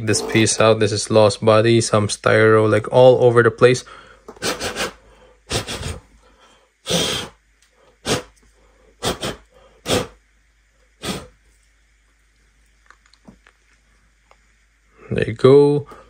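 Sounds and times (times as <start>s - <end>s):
person blowing puffs of breath: 3.9s - 10.3s, 10.9s - 11.4s.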